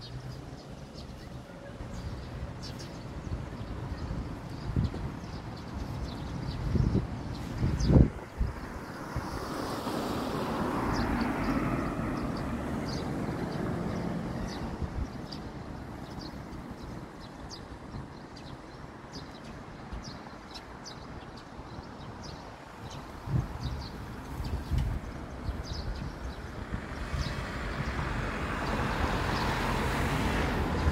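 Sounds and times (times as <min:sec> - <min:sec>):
steady traffic noise: 0:00.0 - 0:30.9
vehicle passing: 0:07.3 - 0:16.2, 0:26.6 - 0:30.9.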